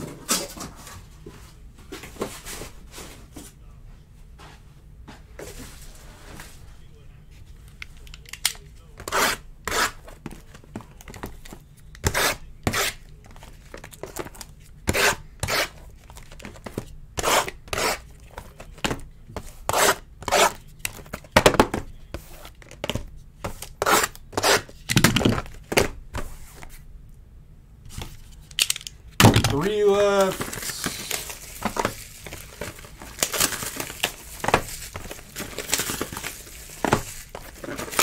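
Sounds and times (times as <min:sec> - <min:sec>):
plastic wrap ripping and crinkling: 0:29.5 - 0:38.0.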